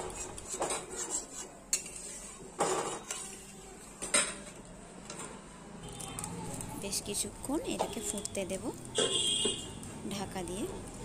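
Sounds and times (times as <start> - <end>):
spoon scraping metal pan: 0.0 - 3.4.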